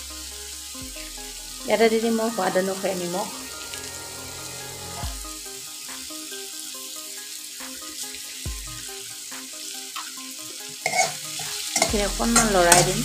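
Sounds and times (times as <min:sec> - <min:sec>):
vegetables sizzling in hot oil: 0:05.2 - 0:13.0.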